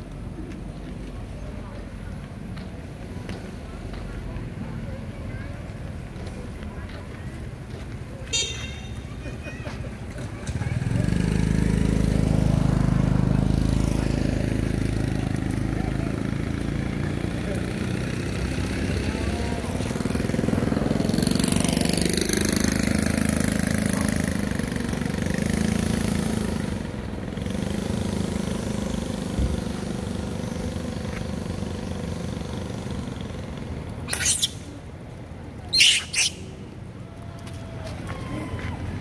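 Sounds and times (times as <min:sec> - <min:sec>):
motor vehicle droning: 0:09.0 - 0:39.0
monkey squeals: 0:34.1 - 0:34.6, 0:35.7 - 0:36.6.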